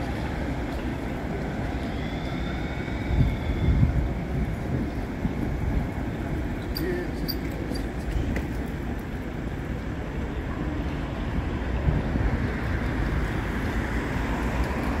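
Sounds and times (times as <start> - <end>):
low traffic rumble: 0.0 - 15.0
wind buffeting microphone: 2.5 - 6.7.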